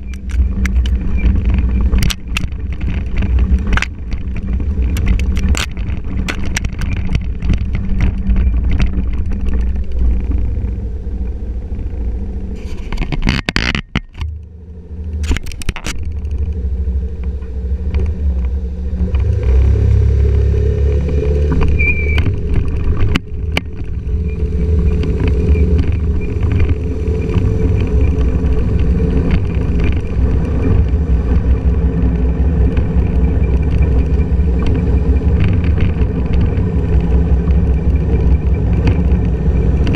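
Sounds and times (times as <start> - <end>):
scooter engine rumble: 0.0 - 39.9
wind buffeting microphone: 15.0 - 39.9.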